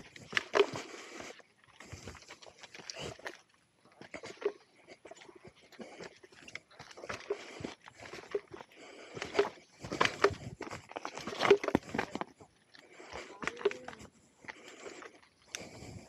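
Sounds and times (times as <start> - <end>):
crunching and rattling on stony trail: 0.0 - 16.0.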